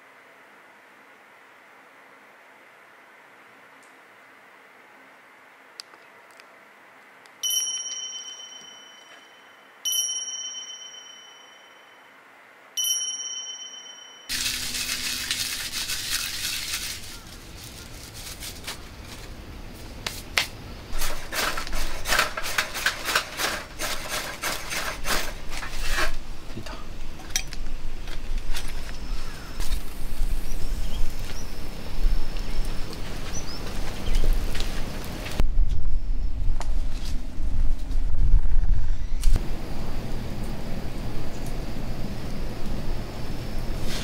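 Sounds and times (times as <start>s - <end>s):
bright chime strikes: 7.4s - 12.1s, 12.8s - 14.3s
kindling handled in metal fire pit: 14.3s - 29.0s.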